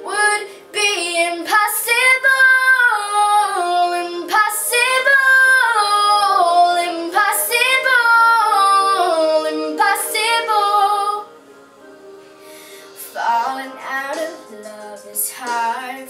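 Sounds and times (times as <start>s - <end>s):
faint backing music: 0.0s - 16.0s.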